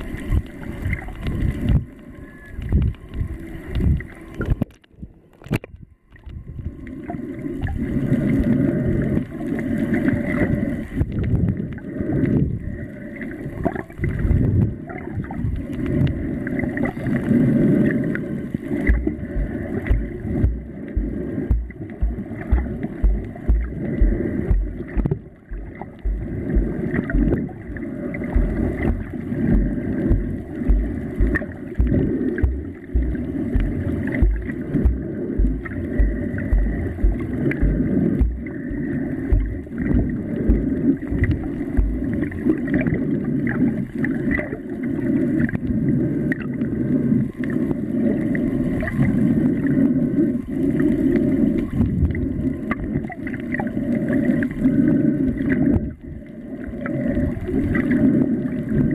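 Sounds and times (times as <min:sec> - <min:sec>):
underwater gurgling: 0:00.0 - 0:58.9
deep thumps: 0:18.9 - 0:27.5, 0:28.4 - 0:42.1.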